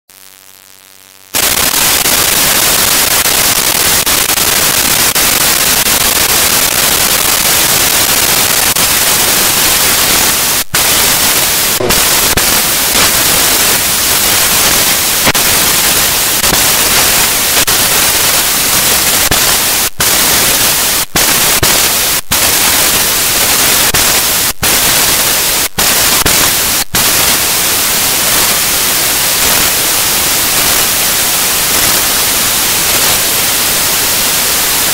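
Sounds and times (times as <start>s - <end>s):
loud static hiss: 0.1s - 34.9s.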